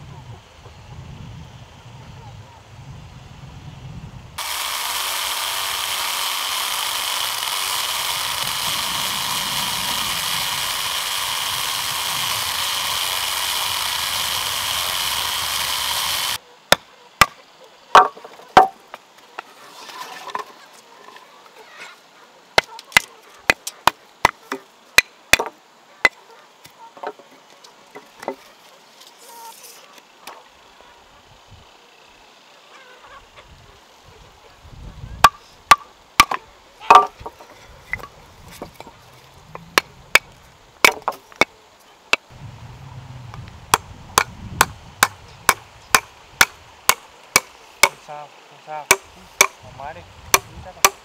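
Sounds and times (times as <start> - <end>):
wood splitting: 4.4 - 18.9, 22.6 - 27.2, 35.2 - 42.3, 43.7 - 48.1, 48.9 - 49.6, 50.3 - 51.0.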